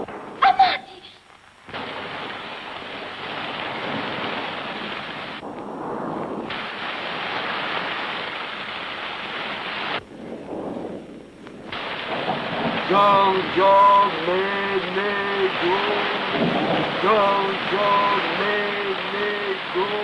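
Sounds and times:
rain: 0:00.0 - 0:20.0
wind: 0:00.0 - 0:20.0.

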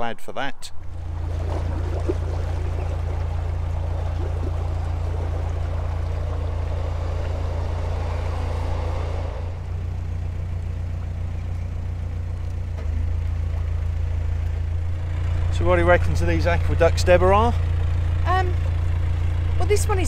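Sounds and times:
diesel engine running: 0:00.8 - 0:20.0
rushing noise: 0:01.2 - 0:09.8.

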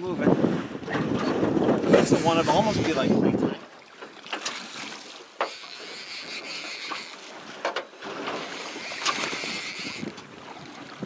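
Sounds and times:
water sloshing against hull: 0:00.0 - 0:11.0
wind hiss on microphone: 0:01.2 - 0:03.6.

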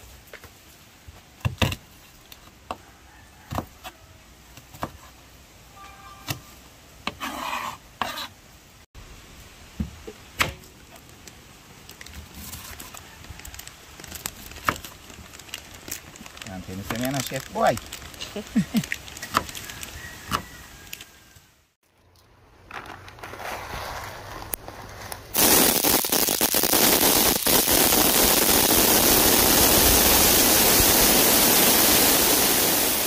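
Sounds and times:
loud steady hiss with crackles: 0:08.4 - 0:21.8, 0:24.1 - 0:33.0.

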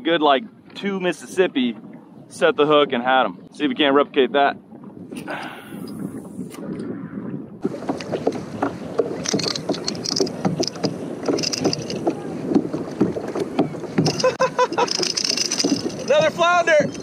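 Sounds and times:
water lapping against hull: 0:00.0 - 0:17.0
fishing reel cranking: 0:14.1 - 0:16.1.

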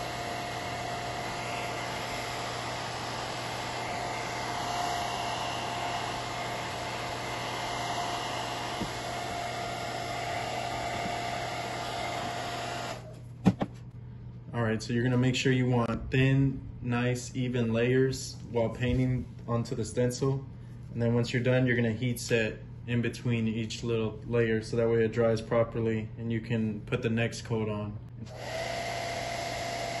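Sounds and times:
hair dryer blowing: 0:00.0 - 0:13.1, 0:28.3 - 0:30.0.

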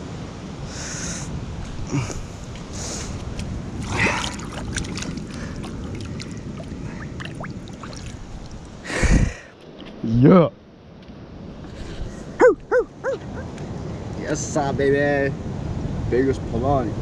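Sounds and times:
steady low rumble: 0:01.3 - 0:09.5
water lapping over rock: 0:01.7 - 0:08.9
small splashes and clicks: 0:02.5 - 0:08.7.

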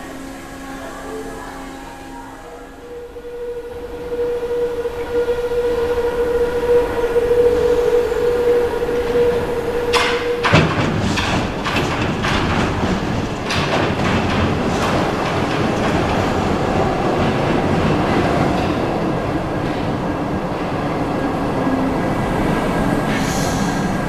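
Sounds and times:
train rumbling: 0:00.0 - 0:24.0
wheels clacking over track joints: 0:09.9 - 0:20.1.

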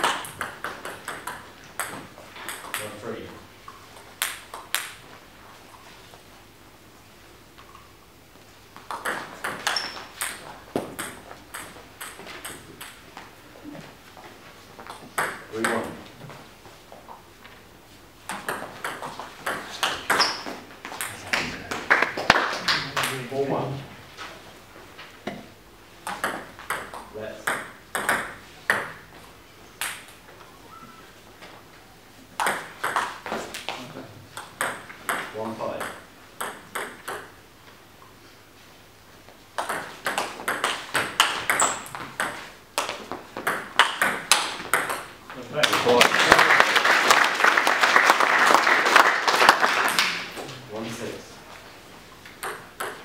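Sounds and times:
table tennis ball hits: 0:00.0 - 0:03.0, 0:04.2 - 0:05.0, 0:08.8 - 0:13.2, 0:14.8 - 0:16.3, 0:18.3 - 0:23.3, 0:25.2 - 0:29.1, 0:29.8 - 0:30.2, 0:32.4 - 0:37.4, 0:39.6 - 0:45.1, 0:52.3 - 0:53.0
table tennis ball clicking: 0:52.3 - 0:53.0.

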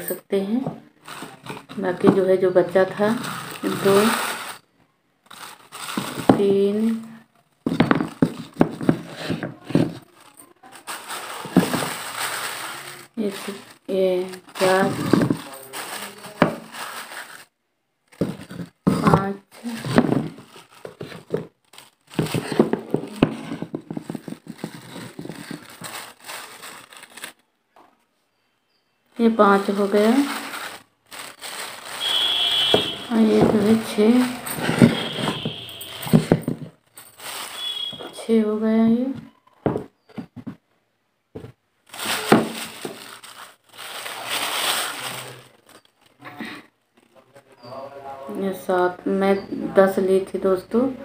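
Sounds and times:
plastic bag rustling: 0:00.9 - 0:04.7, 0:05.3 - 0:17.5, 0:18.1 - 0:27.5, 0:29.2 - 0:38.3, 0:41.4 - 0:46.2.

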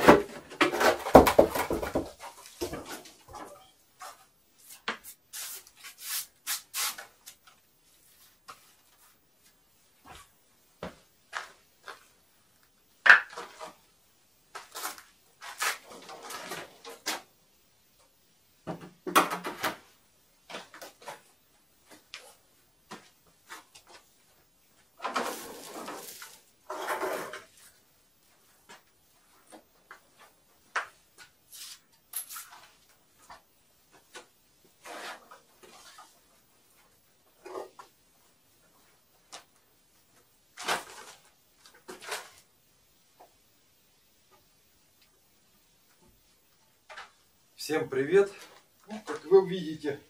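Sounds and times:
wooden boards knocking and clattering: 0:00.0 - 0:03.5
wood scraping on wood: 0:25.0 - 0:27.7, 0:34.8 - 0:36.1.

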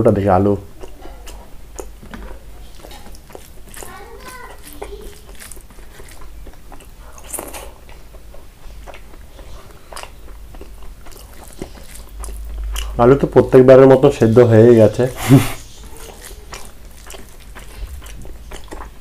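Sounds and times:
chewing and lip-smacking: 0:00.7 - 0:13.4, 0:15.6 - 0:19.0
person murmuring: 0:15.2 - 0:15.6.

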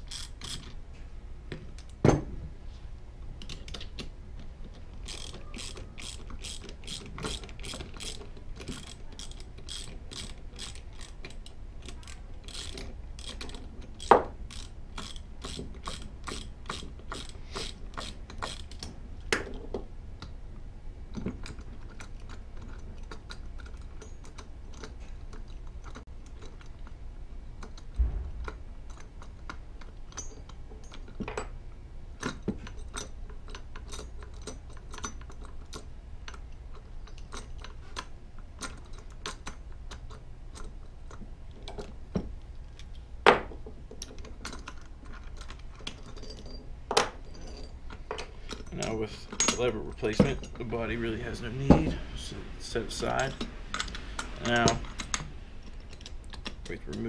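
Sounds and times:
socket ratchet clicking: 0:00.0 - 0:00.8, 0:05.0 - 0:18.9
dull thump: 0:28.0 - 0:28.5
metal tools clinking: 0:30.1 - 0:31.6, 0:44.0 - 0:52.0, 0:52.7 - 0:57.0.

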